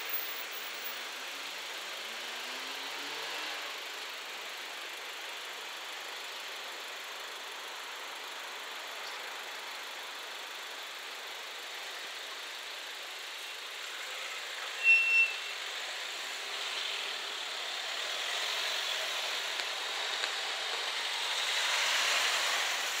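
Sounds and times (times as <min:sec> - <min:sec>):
cars driving over crossing: 0:14.0 - 0:23.0
short high beep: 0:14.8 - 0:15.5.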